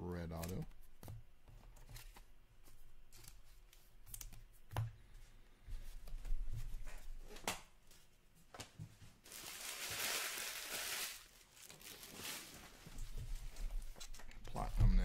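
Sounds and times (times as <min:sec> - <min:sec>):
foil wrapper crinkling and tearing: 0:09.2 - 0:13.0.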